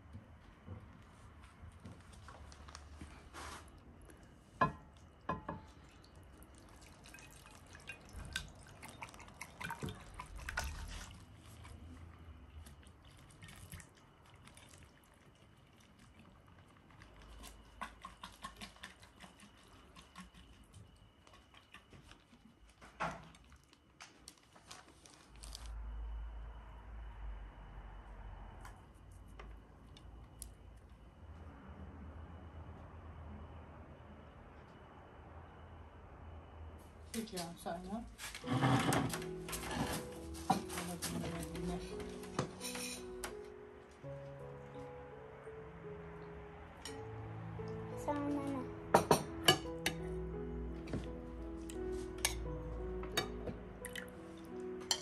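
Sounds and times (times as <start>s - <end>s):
broth pouring and plopping: 5.7s - 11.8s, 12.6s - 20.6s, 53.8s - 54.2s
water dripping and splashing: 5.7s - 22.4s, 53.8s - 54.6s.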